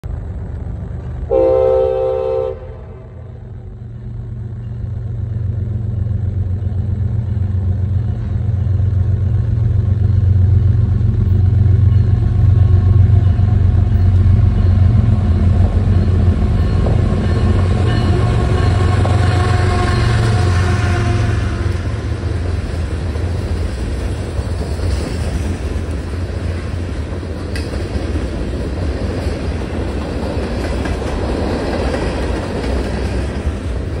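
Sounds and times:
diesel locomotive rumble: 0:00.0 - 0:34.0
freight cars rolling by: 0:00.0 - 0:34.0
train horn blast: 0:01.3 - 0:03.4, 0:17.1 - 0:22.2.

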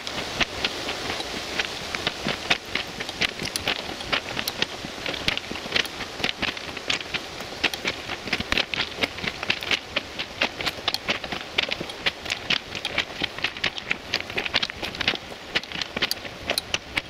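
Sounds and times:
footsteps crunching on gravel: 0:00.4 - 0:17.0.

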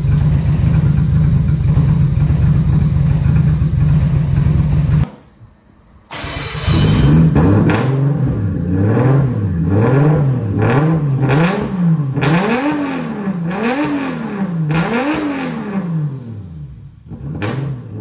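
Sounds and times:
car engine revving: 0:06.7 - 0:18.0.

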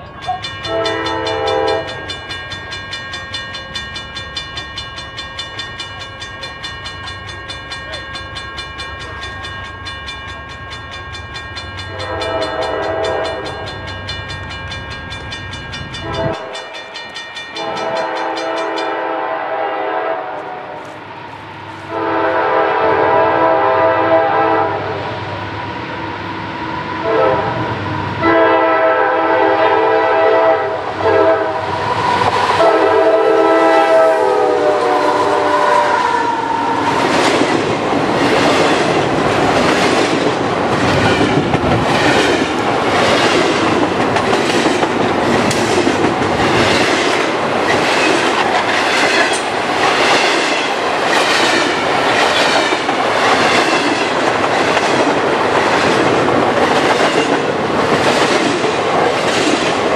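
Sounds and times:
train cars rumbling: 0:00.0 - 0:59.9
locomotive air horn blasts: 0:00.7 - 0:02.0, 0:11.9 - 0:13.7, 0:17.6 - 0:20.9, 0:21.9 - 0:25.0, 0:27.0 - 0:27.6, 0:28.2 - 0:36.7
wheels clacking over rail joints: 0:36.9 - 0:59.9.

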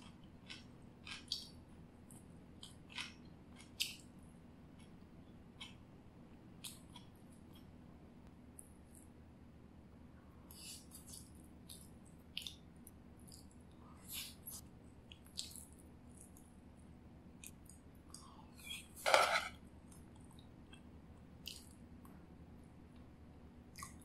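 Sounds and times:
person chewing food: 0:00.0 - 0:05.8, 0:10.5 - 0:16.6, 0:17.4 - 0:22.2, 0:22.9 - 0:24.0.

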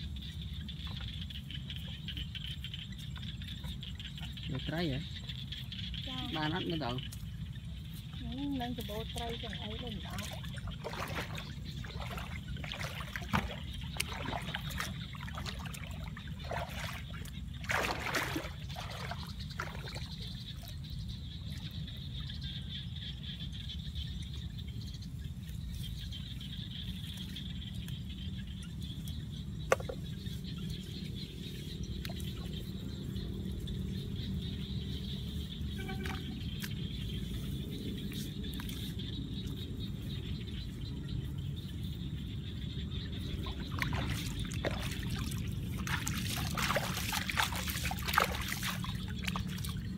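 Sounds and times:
steady low rumble: 0:00.0 - 0:49.9
shallow water splashing: 0:02.0 - 0:22.2, 0:43.0 - 0:49.9.

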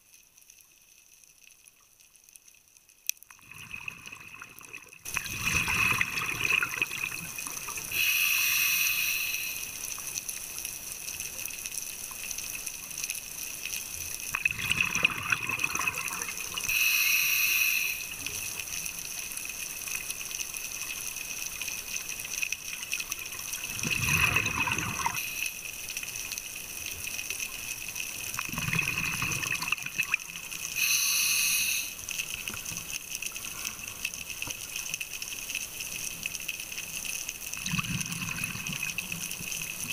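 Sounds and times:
exhaust bubbles rushing: 0:03.6 - 0:07.3, 0:23.7 - 0:25.2, 0:28.4 - 0:30.2, 0:37.6 - 0:38.9
diver breathing through regulator: 0:07.9 - 0:09.8, 0:16.7 - 0:18.2, 0:30.8 - 0:32.0.

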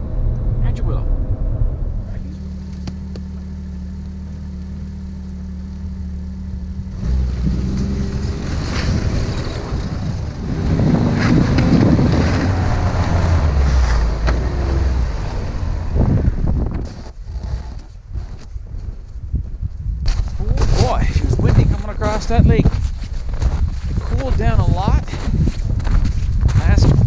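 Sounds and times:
snowmobile engine: 0:01.6 - 0:18.4
wind noise on microphone: 0:06.4 - 0:27.0.

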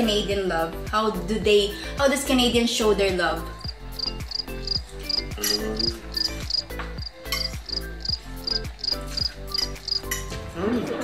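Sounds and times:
high ticking percussion: 0:03.6 - 0:10.2
music chords: 0:03.6 - 0:10.2.

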